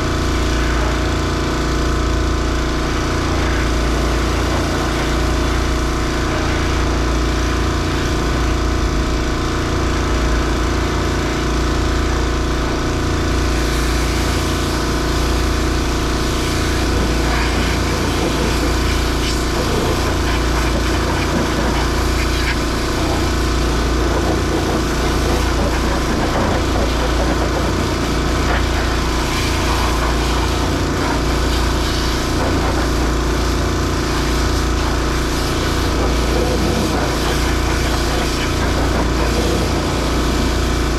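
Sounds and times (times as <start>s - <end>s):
engine running steadily: 0.0s - 40.9s.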